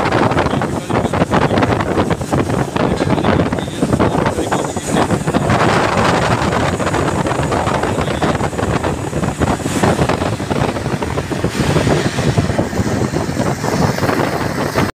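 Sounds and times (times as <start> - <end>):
machinery rumbling: 0.0 - 14.9
wind buffeting microphone: 0.0 - 14.9.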